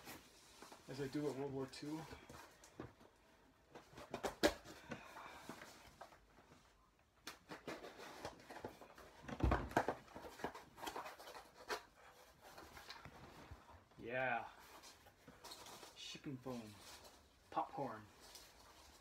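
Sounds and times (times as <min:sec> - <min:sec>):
cardboard box packaging rustling: 0:07.5 - 0:13.6.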